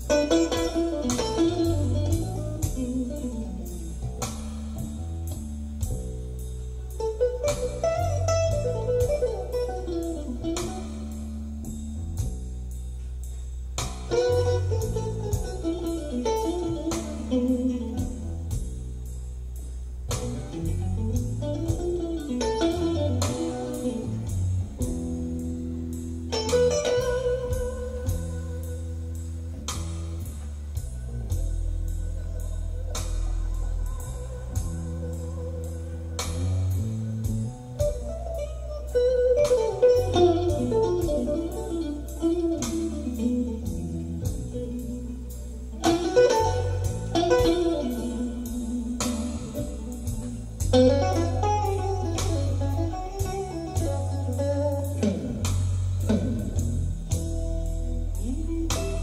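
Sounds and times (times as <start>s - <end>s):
steady bass line: 0.0s - 59.0s
band music over loudspeakers: 20.1s - 59.0s.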